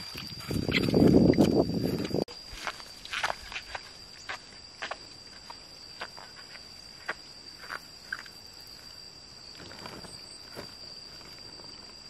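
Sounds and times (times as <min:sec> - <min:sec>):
footsteps on grass: 0:00.0 - 0:07.9
high-pitched insect drone: 0:00.0 - 0:12.0.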